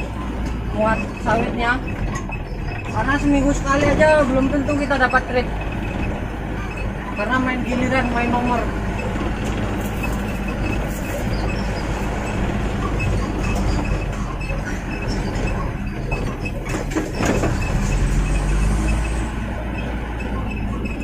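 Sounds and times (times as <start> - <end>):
cab rattling over bumps: 0.0 - 21.0
heavy rumble: 0.0 - 21.0
truck engine running: 0.0 - 21.0.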